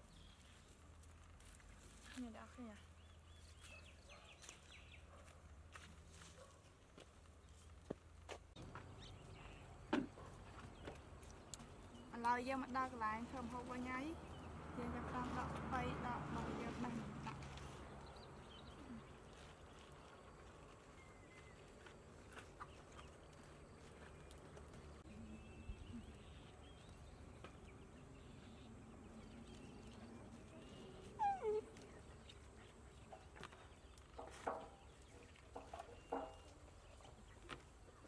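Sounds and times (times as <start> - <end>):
rustling of leafy vegetables: 0.0 - 38.0
puppy whining: 31.0 - 32.0.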